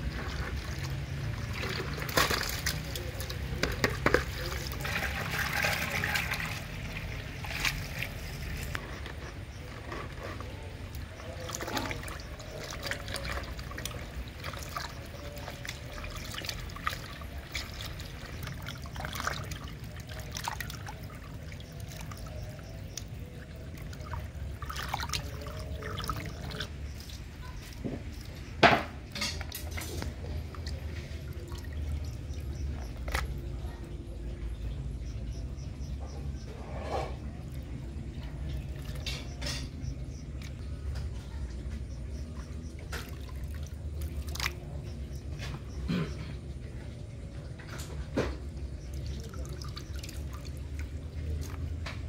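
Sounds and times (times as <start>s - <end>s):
hose water running into bucket: 0.0s - 33.8s, 47.6s - 52.0s
water splashing and sloshing: 0.0s - 52.0s.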